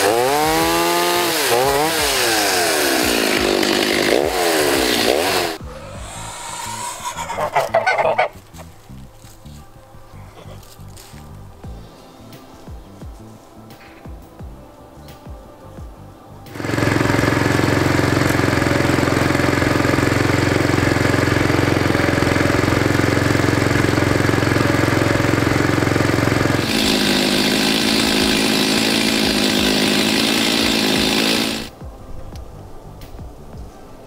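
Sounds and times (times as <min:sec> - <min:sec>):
walk-behind tractor engine running: 0:16.5 - 0:31.7.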